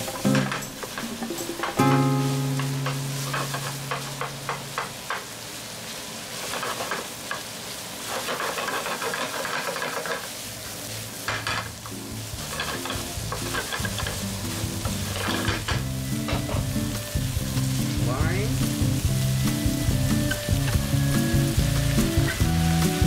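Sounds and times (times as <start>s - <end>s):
spatula scraping a pan: 0.0s - 5.0s, 6.3s - 10.4s, 12.3s - 18.0s
food sizzling in a frying pan: 0.0s - 23.0s.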